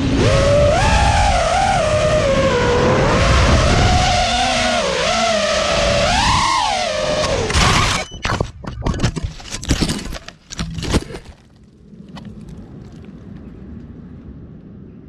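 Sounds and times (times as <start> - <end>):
wind rushing: 0.0 - 7.5
drone motors whining: 0.0 - 9.3.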